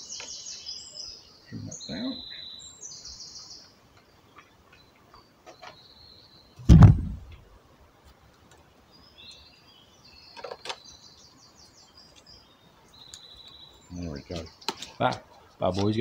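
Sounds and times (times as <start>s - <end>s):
small birds chirping: 0.0s - 16.0s
heavy thump with low rumble: 6.6s - 7.4s
sharp knock: 6.7s - 7.4s.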